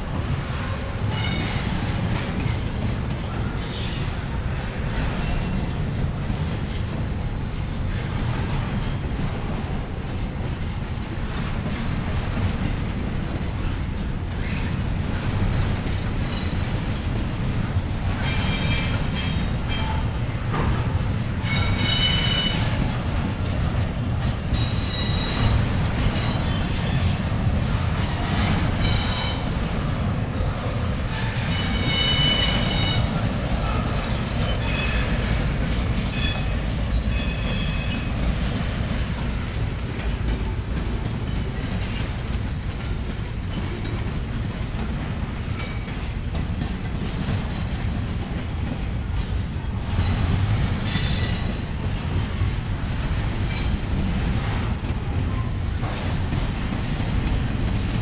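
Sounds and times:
freight train rumbling: 0:00.0 - 0:58.0
train wheel squeal: 0:00.6 - 0:05.9, 0:13.6 - 0:17.1, 0:18.2 - 0:22.9, 0:24.5 - 0:27.3, 0:28.0 - 0:29.7, 0:30.4 - 0:38.6, 0:49.2 - 0:51.9, 0:53.1 - 0:57.2.

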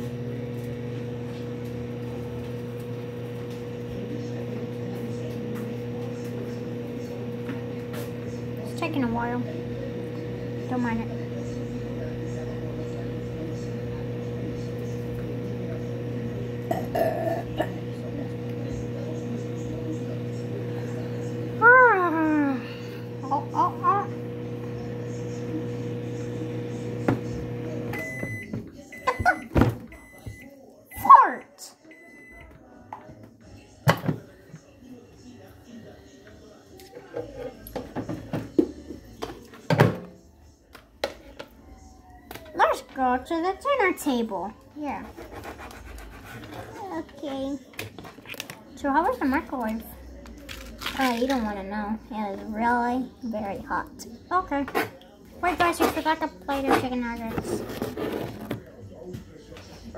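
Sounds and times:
microwave oven humming: 0:00.0 - 0:32.8.

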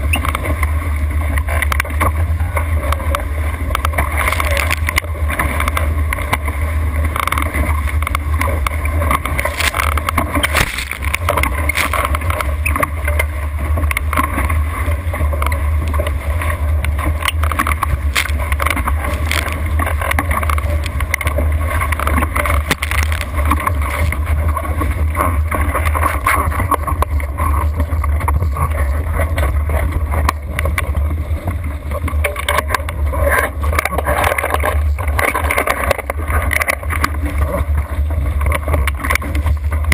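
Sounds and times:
water rushing past hull: 0:00.0 - 0:39.9
small splashes: 0:07.0 - 0:13.4, 0:16.1 - 0:25.1.

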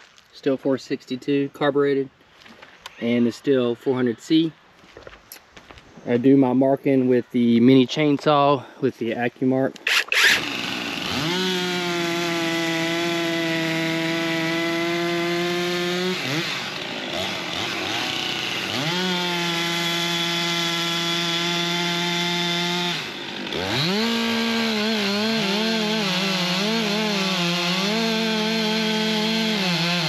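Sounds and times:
chainsaw cutting logs: 0:09.8 - 0:30.0
second chainsaw running: 0:09.8 - 0:30.0.

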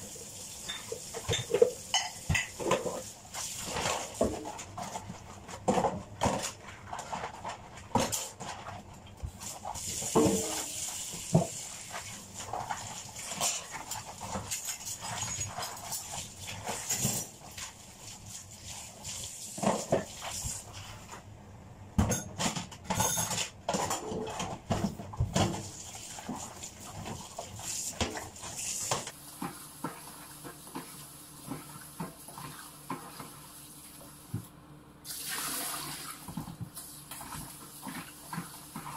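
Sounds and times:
tap water running: 0:00.0 - 0:04.5, 0:09.2 - 0:20.8, 0:24.8 - 0:38.9
dishes clattering in sink: 0:00.6 - 0:08.8, 0:09.8 - 0:17.8, 0:19.5 - 0:20.6, 0:22.0 - 0:33.4.

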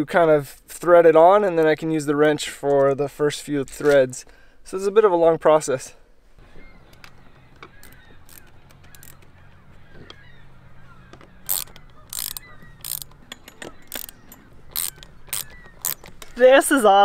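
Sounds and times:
tools clicking on metal bolts: 0:06.9 - 0:09.3, 0:11.1 - 0:16.4.

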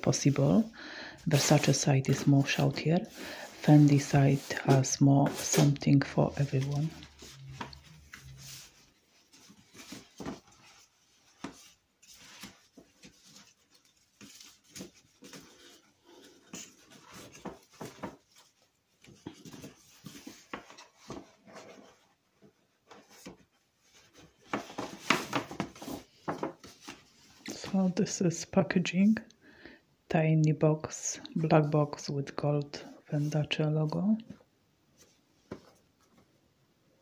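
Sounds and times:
paper bag rustling: 0:01.3 - 0:18.3.

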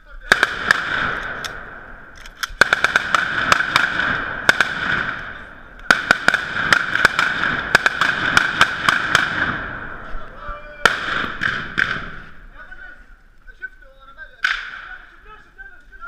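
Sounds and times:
assault rifles firing: 0:00.2 - 0:10.2, 0:10.8 - 0:12.5, 0:14.4 - 0:15.1.

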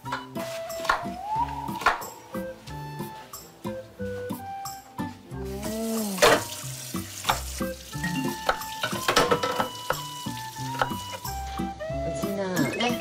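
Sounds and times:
soft background music: 0:00.0 - 0:13.0
food sizzling in a frying pan: 0:05.5 - 0:11.5
knife chopping on wooden board: 0:10.8 - 0:11.1.

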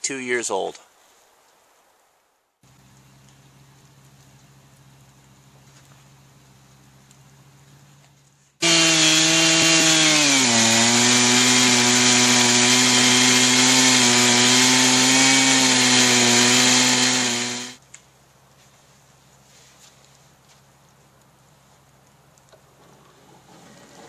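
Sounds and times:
chainsaw cutting log at full throttle: 0:08.6 - 0:17.8.

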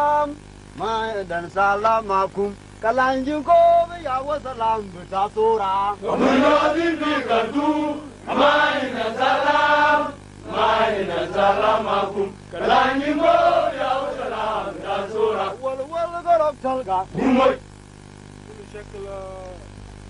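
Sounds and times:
voices chanting: 0:06.0 - 0:15.7, 0:17.1 - 0:17.6.

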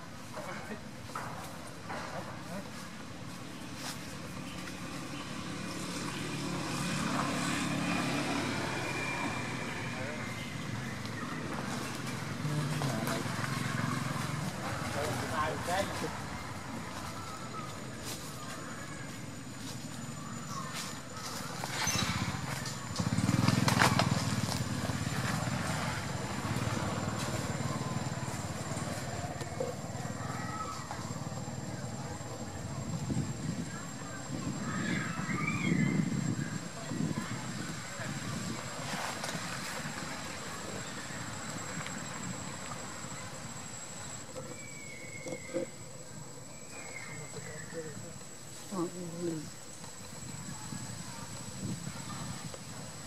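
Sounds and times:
small engine rumbling: 0:00.0 - 0:53.0
passing vehicle engine hum: 0:05.2 - 0:16.8, 0:21.5 - 0:33.5.

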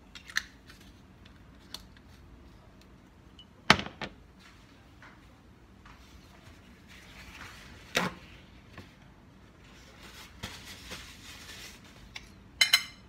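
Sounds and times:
paper towels rustling: 0:06.0 - 0:12.1.

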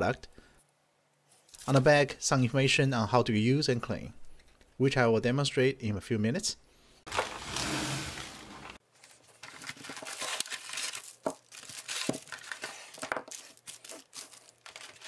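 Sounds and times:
plastic packaging crinkling: 0:07.1 - 0:07.6, 0:08.6 - 0:15.0.

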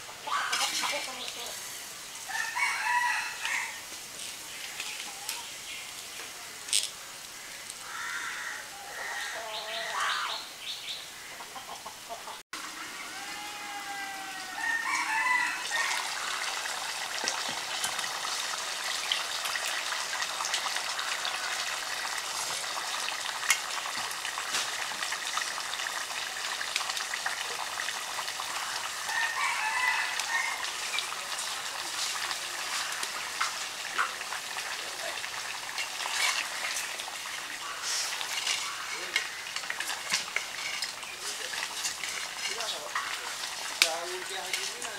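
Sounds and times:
food cooking with hiss and crackles: 0:00.0 - 0:44.9
rooster crowing: 0:02.3 - 0:03.8, 0:07.9 - 0:10.0, 0:12.6 - 0:16.6, 0:29.0 - 0:30.9.

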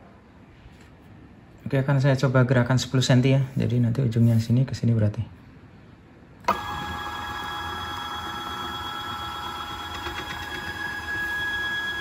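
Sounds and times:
stepper motor whine: 0:06.5 - 0:12.0.

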